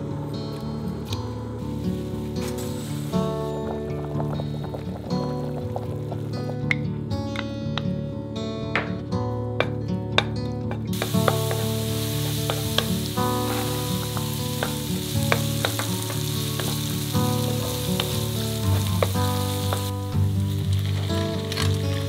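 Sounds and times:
garlic sizzling in hot oil: 1.8s - 6.5s, 10.9s - 22.0s.

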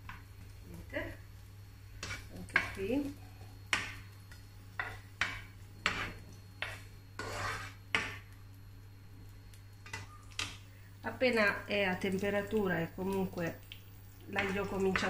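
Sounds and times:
steady low hum: 0.0s - 15.0s
spoon tapping and scraping a pan: 2.0s - 2.8s, 3.7s - 8.4s, 14.3s - 15.0s.

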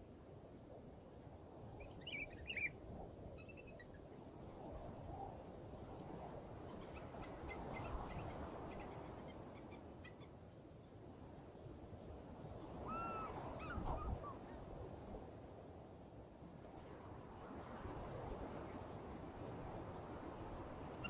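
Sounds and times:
wind rumbling on microphone: 11.2s - 21.0s.

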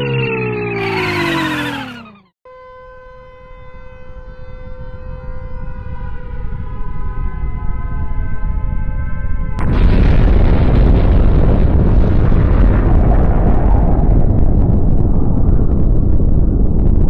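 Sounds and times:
falling electronic jingle: 0.0s - 3.1s
held pitched tone: 0.0s - 3.4s
low rumble: 8.6s - 17.0s.

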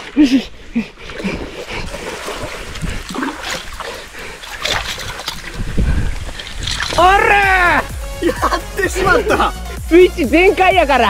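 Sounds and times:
water splashing and sloshing: 0.0s - 8.1s.

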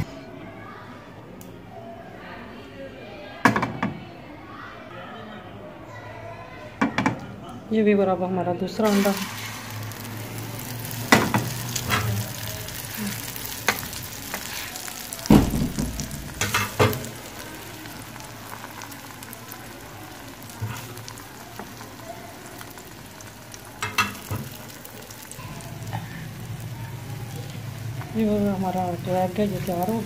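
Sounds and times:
egg sizzling in hot oil: 8.7s - 30.0s.

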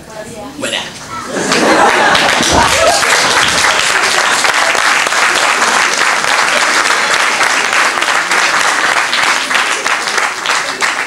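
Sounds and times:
audience applause: 1.4s - 11.0s.

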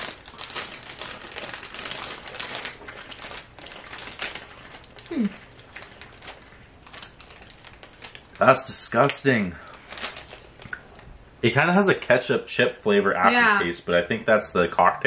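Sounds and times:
plastic packet crinkling: 0.0s - 11.1s.

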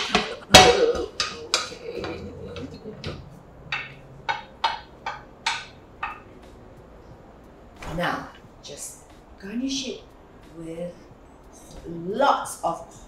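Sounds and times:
cookware clattering: 0.0s - 6.2s.

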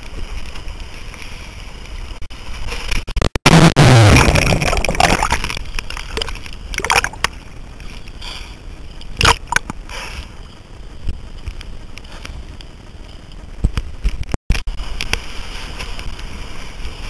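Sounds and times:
muffled underwater rush: 0.8s - 8.1s
water sloshing and splashing: 4.2s - 7.4s.

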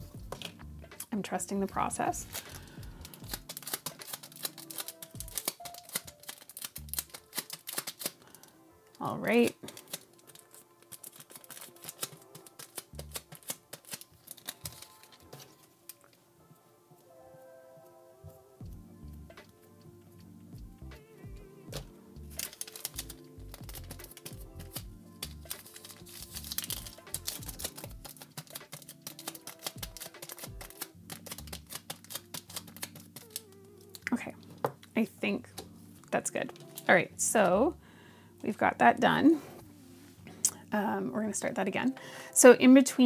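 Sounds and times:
soft background music: 0.0s - 43.0s
small plastic things clicking: 2.3s - 8.3s, 9.7s - 16.1s, 21.7s - 34.1s.

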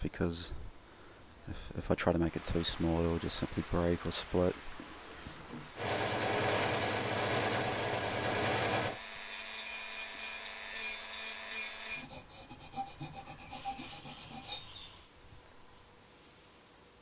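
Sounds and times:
wood on spinning sanding drum: 5.7s - 9.0s, 12.0s - 14.6s
rotary tool whine: 5.8s - 9.0s
hand sanding strokes: 12.0s - 14.9s.

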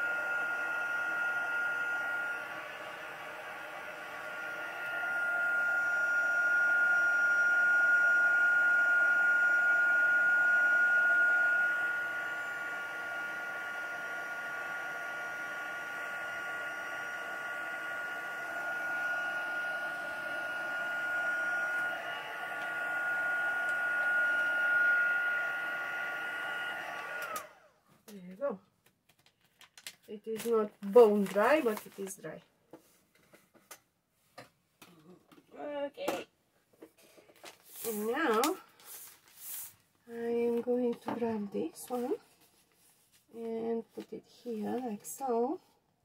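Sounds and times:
heat gun whining: 0.0s - 27.8s, 37.7s - 39.6s.

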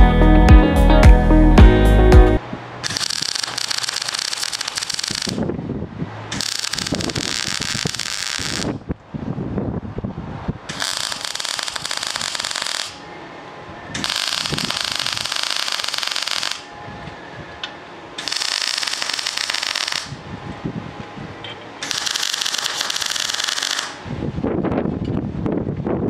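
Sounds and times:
welding arc crackling: 2.8s - 5.5s, 6.4s - 8.8s, 10.7s - 13.0s, 14.0s - 16.7s, 18.2s - 20.2s, 21.8s - 24.0s.

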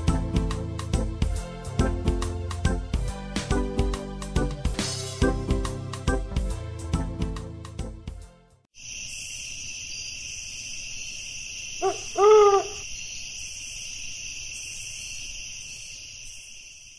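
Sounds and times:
owl hooting: 11.7s - 13.2s.

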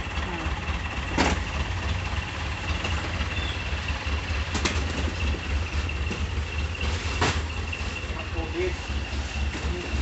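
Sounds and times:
engine idling: 0.0s - 10.0s.

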